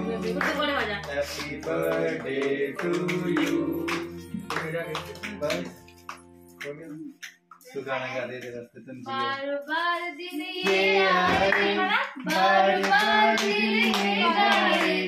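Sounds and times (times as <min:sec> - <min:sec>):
adults and children singing: 0:00.0 - 0:04.3, 0:10.2 - 0:15.0
hand clapping: 0:00.2 - 0:08.6, 0:09.9 - 0:15.0.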